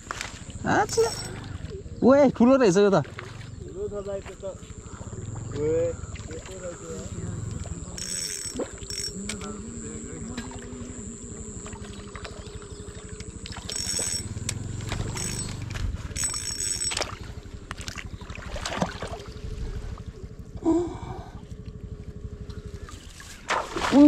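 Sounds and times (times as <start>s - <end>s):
fishing reel rattling: 0.1s - 1.8s, 6.5s - 17.9s
high metallic ringing: 0.1s - 2.5s, 3.7s - 17.8s.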